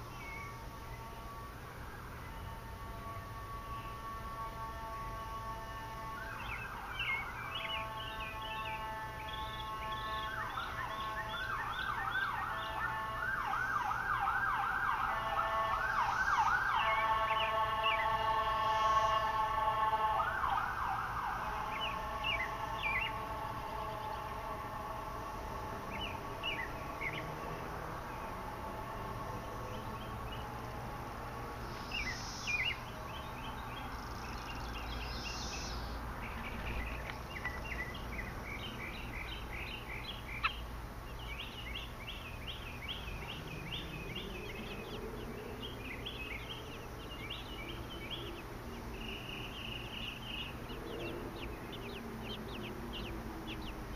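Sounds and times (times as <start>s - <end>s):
siren wailing: 0.6s - 31.5s
baby birds chirping: 6.3s - 13.2s, 21.3s - 24.4s, 25.1s - 30.8s, 31.5s - 53.9s.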